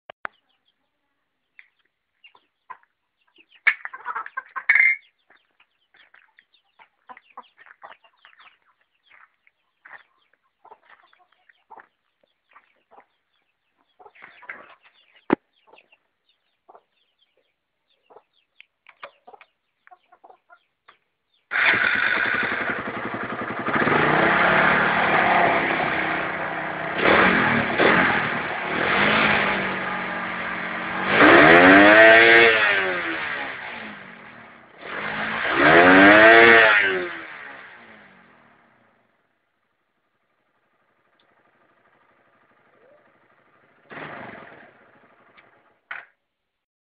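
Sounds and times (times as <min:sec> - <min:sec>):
chickens clucking: 0:00.3 - 0:21.4
motorcycle engine starting and revving: 0:21.5 - 0:46.2.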